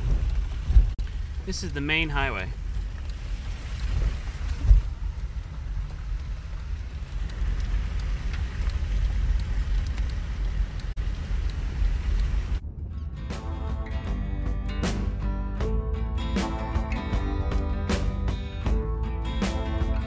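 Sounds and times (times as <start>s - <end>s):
vehicle rumble on wet road: 0.0s - 13.1s.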